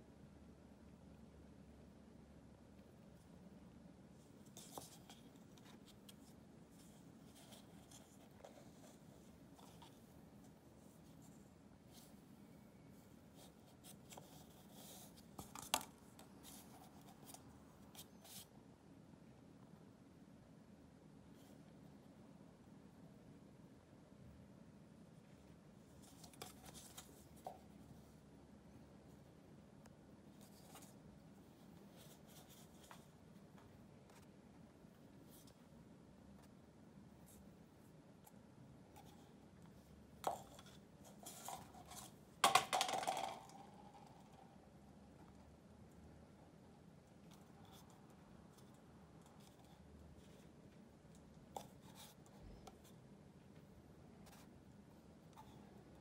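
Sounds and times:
low room hum: 0.0 - 56.0
cat scratching paper cup: 40.2 - 44.2.

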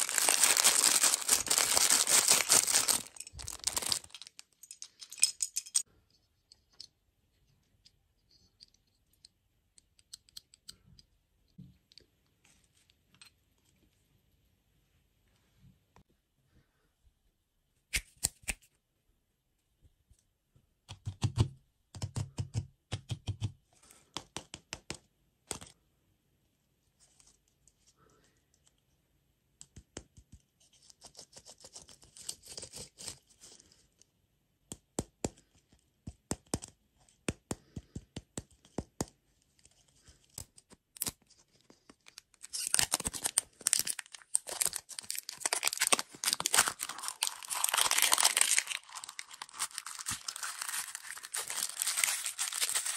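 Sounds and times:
wrapper torn off: 0.0 - 4.4, 42.1 - 52.9
plastic wrapper crinkling: 0.0 - 4.8, 41.0 - 52.9.

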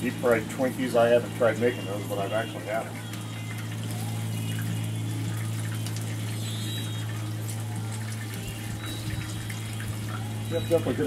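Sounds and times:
oil bubbling and sizzling: 0.0 - 11.0.

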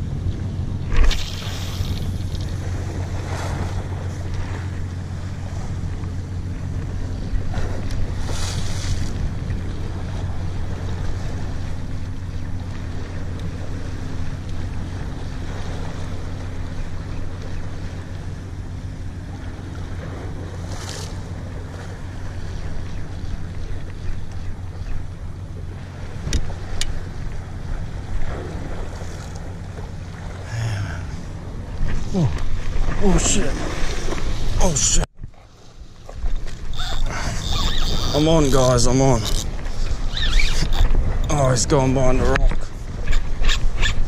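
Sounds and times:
wind buffeting microphone: 0.0 - 35.4, 36.1 - 44.0
sea swell washing against rock: 0.8 - 6.1, 6.8 - 18.3, 25.7 - 35.1.

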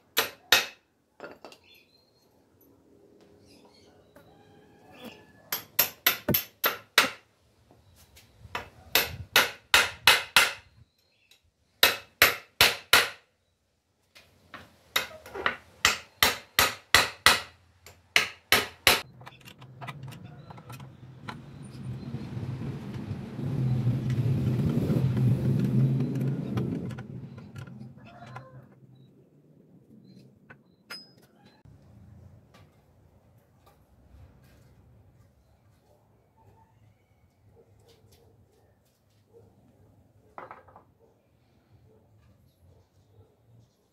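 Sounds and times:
hammer striking wood: 0.2 - 0.8, 5.5 - 7.2, 8.6 - 10.7, 11.8 - 13.2, 14.9 - 19.0
vehicle engine and tyre noise: 19.0 - 30.8.

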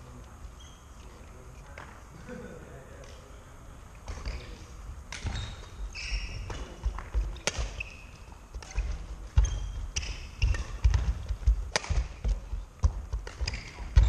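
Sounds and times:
court shoes squeaking: 0.4 - 2.0, 4.0 - 14.0
rackets striking shuttlecock: 4.0 - 14.0.

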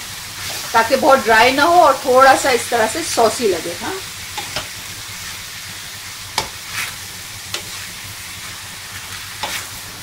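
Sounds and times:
food sizzling in a frying pan: 0.0 - 10.0
spatula scraping and knocking pan: 4.3 - 4.8, 6.3 - 10.0.

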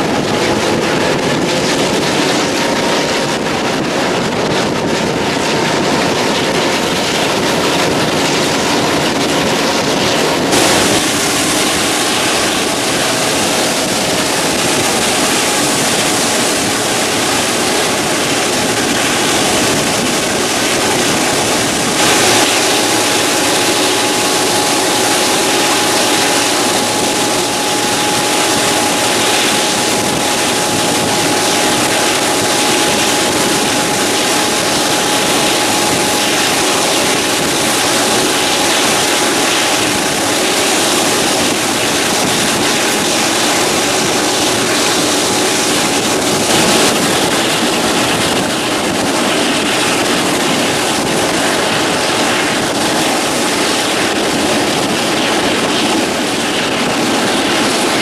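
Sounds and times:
rush of wind and wheels: 0.0 - 58.0
thin steady high tone: 8.9 - 47.2.

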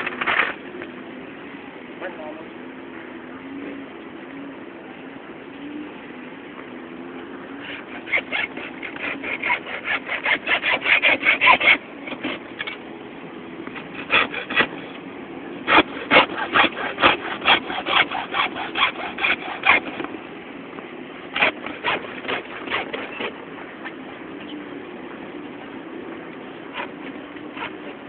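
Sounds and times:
hand saw scraping strokes: 7.6 - 12.8, 13.8 - 15.0, 15.6 - 20.2, 21.3 - 23.4, 26.7 - 28.0.

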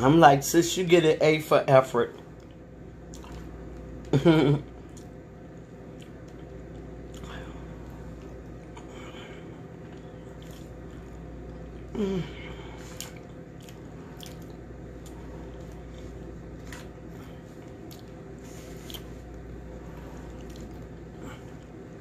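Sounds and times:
steady low hum: 0.0 - 22.0
person chewing: 2.3 - 21.9
person humming: 11.9 - 12.8.

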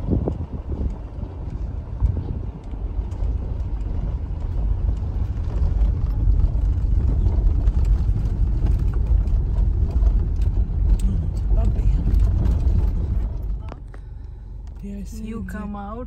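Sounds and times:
car engine and tyres rumbling: 0.0 - 16.0
light ticks: 0.2 - 6.2.

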